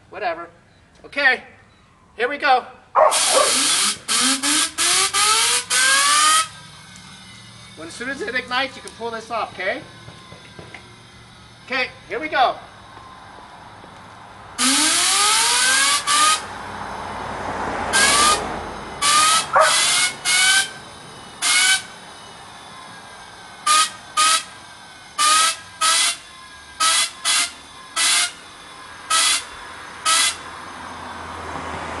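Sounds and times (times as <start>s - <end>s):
jet turbine whine: 3.0s - 32.0s
compressed air blasts hissing: 3.1s - 7.5s, 14.6s - 16.5s, 17.9s - 30.6s.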